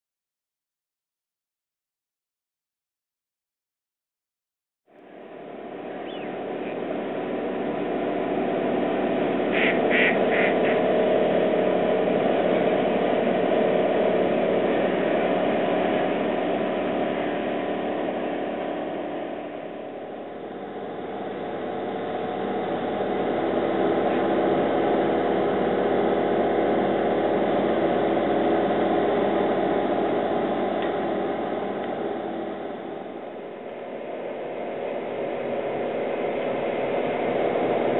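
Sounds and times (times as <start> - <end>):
construction machinery drone: 4.9 - 37.9
ducks calling: 6.0 - 6.8, 9.5 - 11.0.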